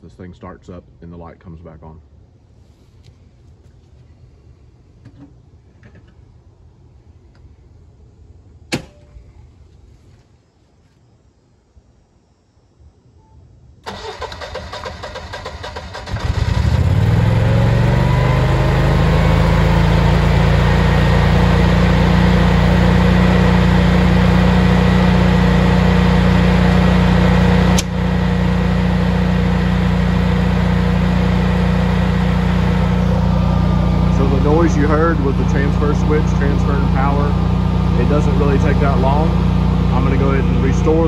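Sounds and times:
generator engine starting and running: 0:13.8 - 0:41.0.

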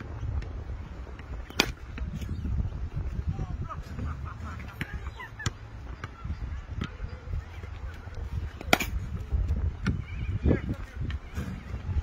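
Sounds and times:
cricket bat striking ball: 0:08.7 - 0:09.0.

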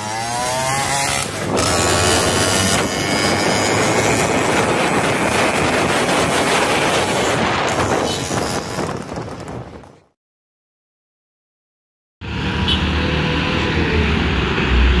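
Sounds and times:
road vehicle engines rushing: 0:00.0 - 0:10.1, 0:12.2 - 0:15.0
wind on microphone: 0:00.8 - 0:10.1.

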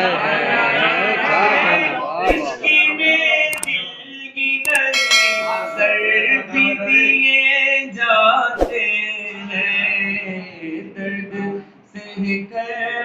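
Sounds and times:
sharp click: 0:04.7 - 0:06.0
bright ringing ding: 0:04.7 - 0:06.5.

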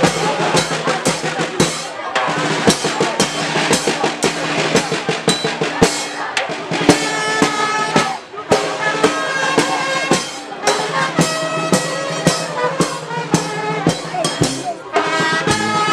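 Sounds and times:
bass and snare drum beat: 0:00.0 - 0:15.9
trumpets: 0:06.9 - 0:15.9.

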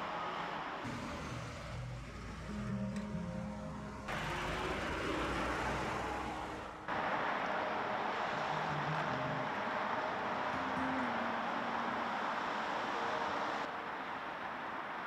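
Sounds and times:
faint engine hum: 0:00.8 - 0:15.0
rushing hiss of vehicles: 0:04.1 - 0:15.0.

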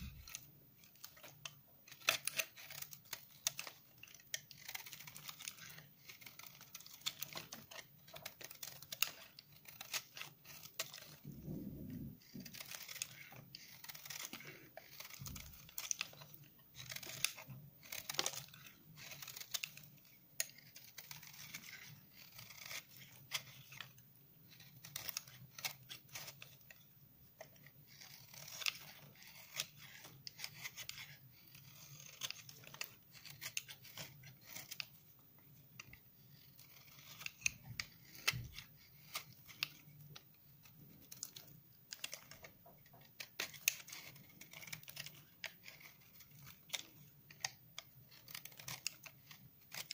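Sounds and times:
knife scraping soap: 0:00.0 - 0:49.9
faint low hum: 0:11.0 - 0:12.8.

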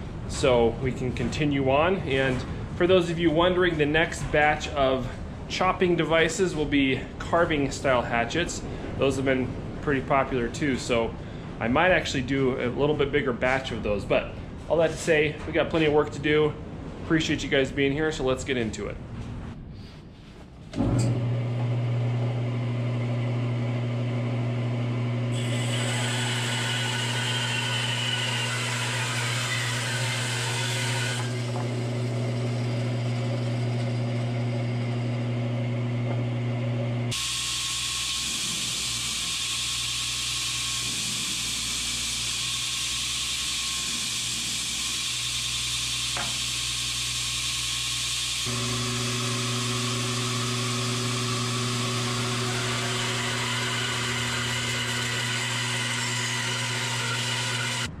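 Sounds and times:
bandsaw motor hum: 0:20.8 - 0:58.0
saw blade cutting wood: 0:25.3 - 0:34.5, 0:37.1 - 0:57.9.

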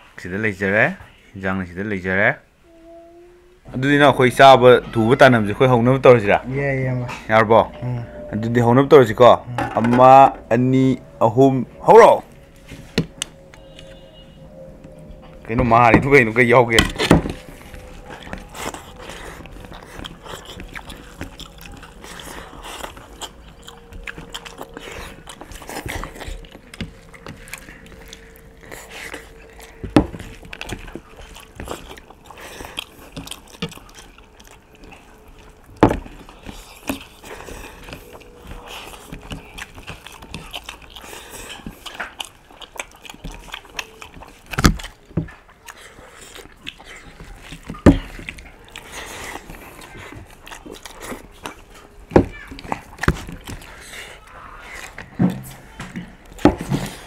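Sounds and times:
people chewing food: 0:02.6 - 0:57.0
fingers working food on plates: 0:15.6 - 0:57.0.

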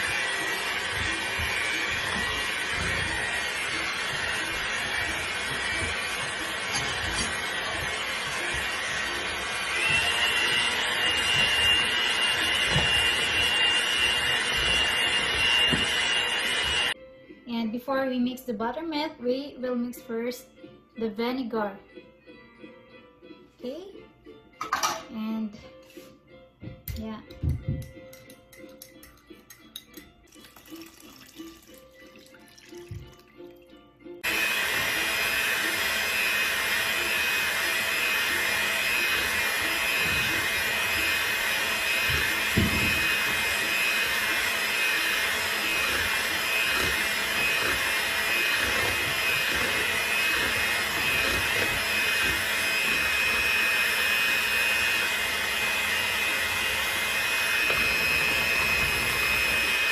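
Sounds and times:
electric hand mixer whirring: 0:00.0 - 0:17.0, 0:34.2 - 0:59.9.

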